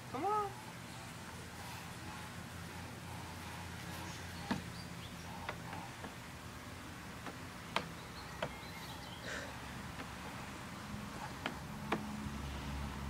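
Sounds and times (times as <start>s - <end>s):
taps on plastic slide steps: 7.2s - 8.6s, 11.2s - 12.2s.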